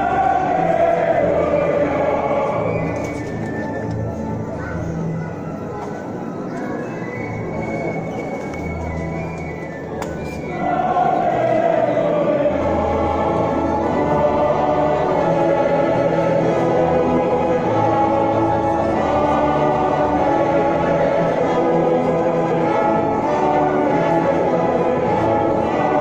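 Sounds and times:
choir singing: 0.0s - 4.9s, 9.6s - 26.0s
orchestra playing: 0.0s - 26.0s.

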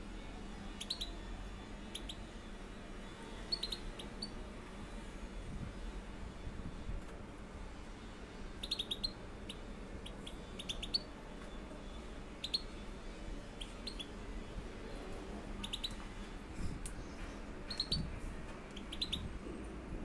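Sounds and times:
goldfinches chirping: 0.8s - 1.2s, 1.9s - 2.4s, 3.4s - 4.4s, 8.6s - 11.1s, 12.4s - 12.8s, 13.6s - 14.2s, 15.6s - 16.0s, 17.7s - 18.1s, 18.8s - 19.3s.

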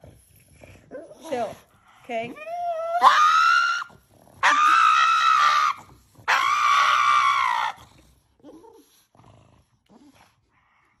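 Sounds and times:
dog screaming: 2.8s - 7.8s.

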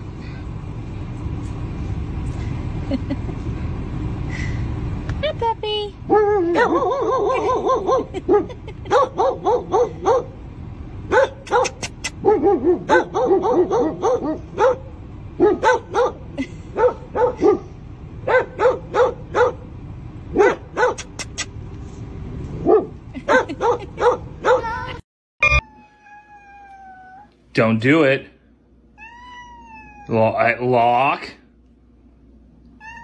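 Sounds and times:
dog yapping barks: 6.1s - 10.4s, 11.1s - 19.7s, 20.3s - 21.4s, 22.6s - 24.8s.

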